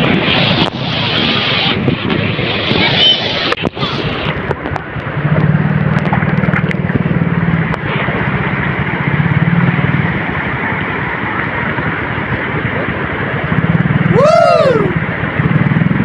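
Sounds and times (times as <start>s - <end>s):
low drone: 0.0s - 16.0s
river running over stones: 3.5s - 16.0s.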